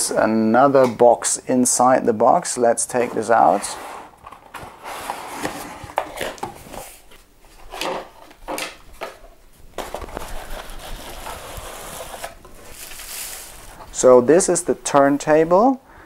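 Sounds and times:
cardboard scraping and rustling: 3.0 - 9.0, 9.8 - 13.9.

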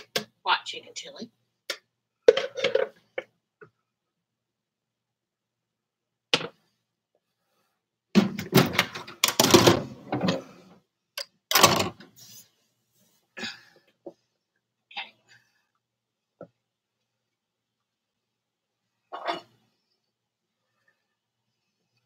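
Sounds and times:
cookware and utensils clattering: 19.1 - 19.6.

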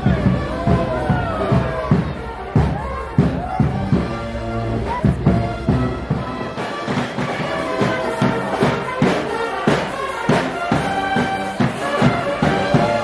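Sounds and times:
marching band drum strokes: 0.0 - 13.0
wind instruments playing tune: 0.0 - 13.0.

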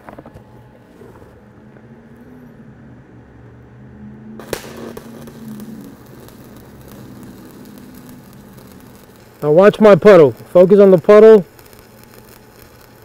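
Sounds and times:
welding arc crackling sizzle: 4.4 - 13.0
welding arc striking crack: 4.4 - 13.0.

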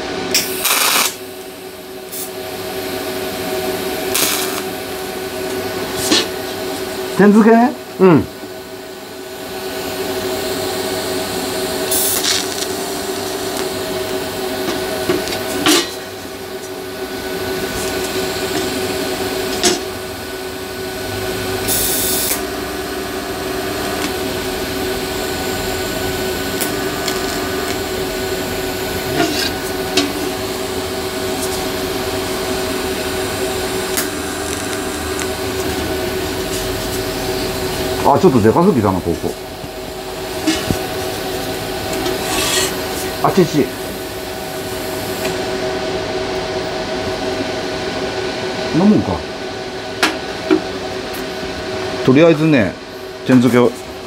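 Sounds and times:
welding arc buzzing: 0.1 - 7.2, 8.2 - 47.4.

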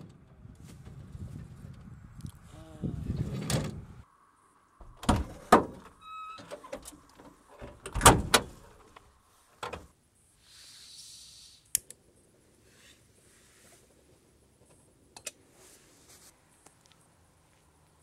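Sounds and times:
van doors clunking shut: 4.8 - 8.8
door squeak: 4.9 - 6.9
brief hiss: 10.4 - 11.8.

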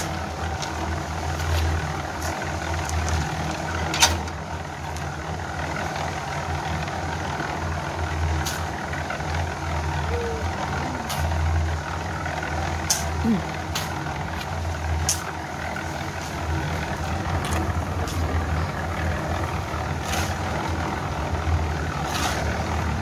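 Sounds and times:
concrete mixer humming: 0.0 - 23.0
shovel scraping gravel: 22.0 - 22.6.

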